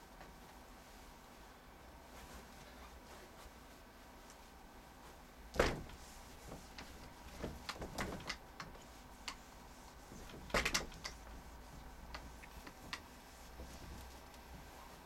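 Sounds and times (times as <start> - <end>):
cloth wiping whiteboard: 0.7 - 15.0.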